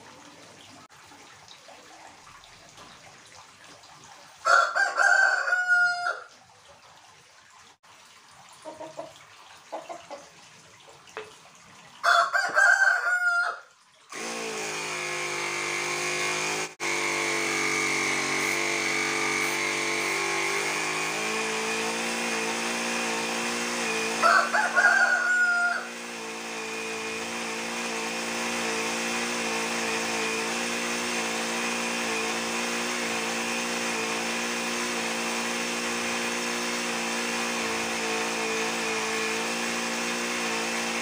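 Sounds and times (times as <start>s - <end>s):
rooster crowing: 4.4s - 6.3s, 12.0s - 13.7s, 24.1s - 26.0s
air compressor humming: 14.1s - 24.3s, 25.2s - 41.0s.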